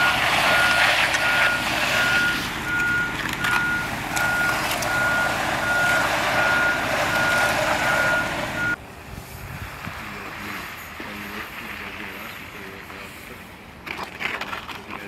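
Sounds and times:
vehicle backup alarm beeping: 0:00.0 - 0:08.8
engine running: 0:00.0 - 0:15.0.

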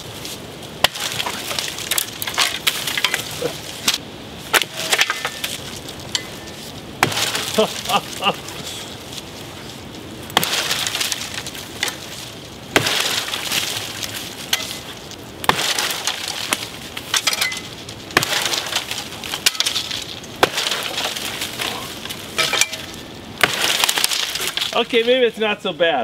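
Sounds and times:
wood splintering and crackling: 0:00.0 - 0:25.4
axe chopping wood: 0:00.8 - 0:06.3, 0:07.0 - 0:07.7, 0:10.3 - 0:12.1, 0:12.7 - 0:21.8, 0:22.4 - 0:24.8.

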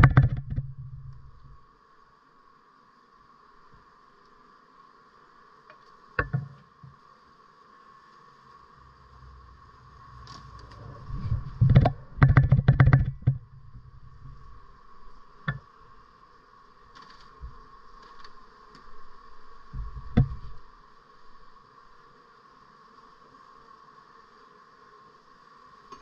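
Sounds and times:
metal hive tool knocking: 0:00.0 - 0:01.1, 0:06.2 - 0:06.6, 0:11.6 - 0:13.6
low rumble: 0:00.0 - 0:01.6, 0:08.8 - 0:15.0.

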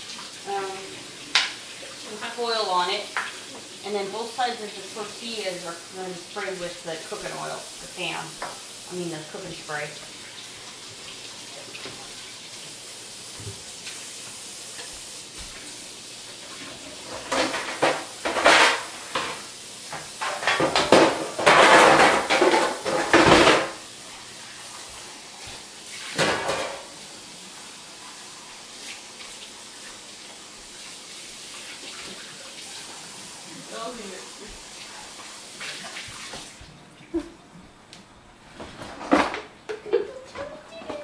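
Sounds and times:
dishes and utensils clattering: 0:16.6 - 0:23.8, 0:26.2 - 0:26.9.

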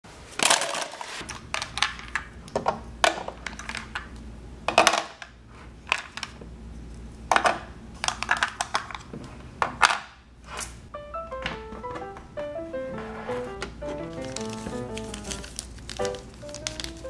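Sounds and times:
plastic toy pieces clacking: 0:00.4 - 0:04.1, 0:07.3 - 0:09.1, 0:14.1 - 0:17.0.

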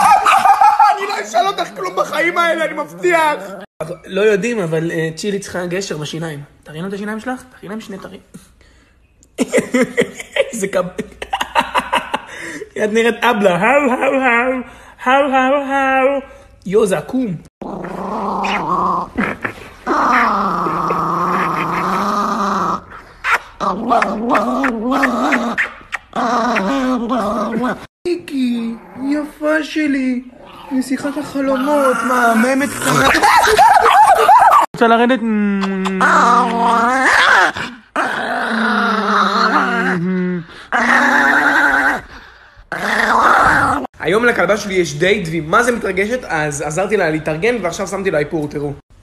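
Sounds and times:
small dog growling: 0:17.6 - 0:27.9, 0:30.3 - 0:34.7, 0:35.8 - 0:43.9.

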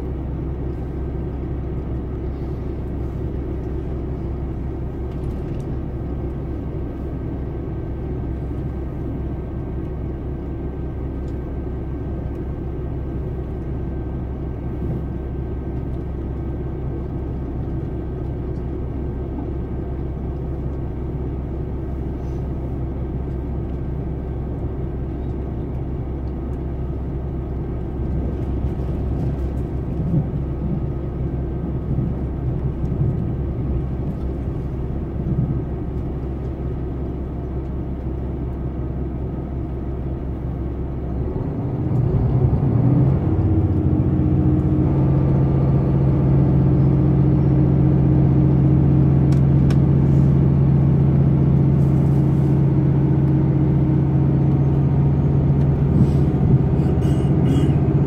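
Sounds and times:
train running rumble: 0:00.0 - 0:58.0
diesel engine powering up: 0:12.9 - 0:58.0.

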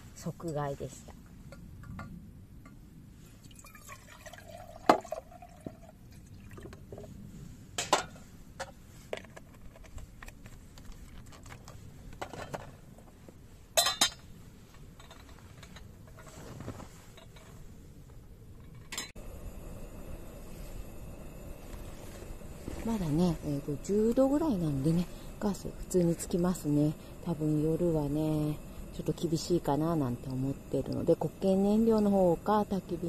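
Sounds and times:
water poured into kettle: 0:03.4 - 0:06.8.

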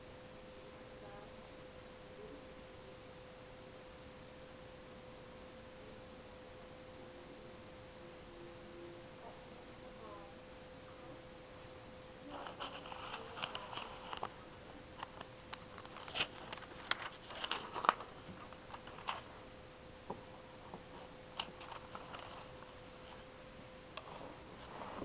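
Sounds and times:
paper crackling and rustling: 0:12.3 - 0:14.4, 0:15.0 - 0:19.3, 0:21.4 - 0:23.2.

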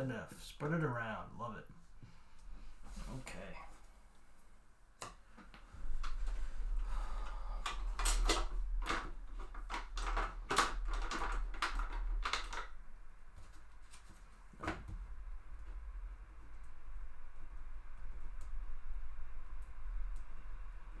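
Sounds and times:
low rumble: 0:14.4 - 0:21.0.

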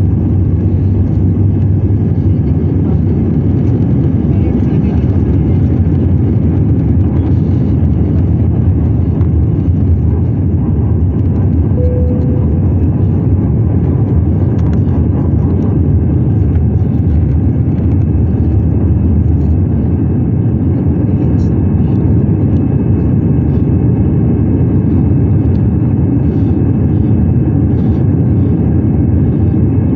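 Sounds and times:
jet engines rumbling in cabin: 0:00.0 - 0:29.9
brief clear tone: 0:11.8 - 0:12.8.

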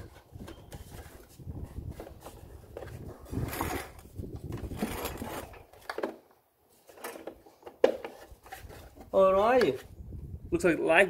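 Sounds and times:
plastic scraping on plastic: 0:00.0 - 0:06.2, 0:06.8 - 0:09.9.

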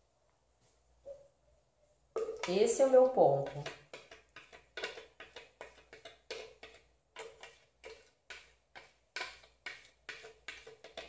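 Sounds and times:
spatula scraping plastic blender jar: 0:03.4 - 0:11.0.

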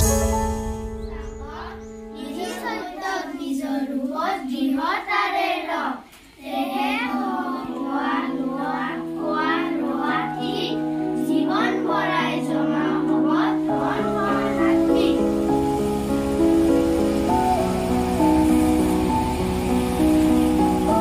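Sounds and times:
children singing in unison: 0:01.0 - 0:21.0
steady held tones: 0:07.2 - 0:21.0.

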